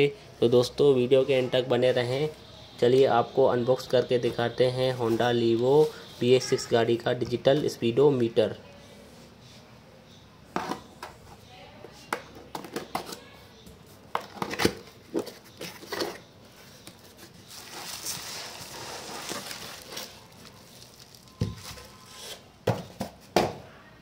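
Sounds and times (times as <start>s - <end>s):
cardboard box being handled: 16.9s - 22.4s
bubble wrap crinkling: 16.9s - 22.5s.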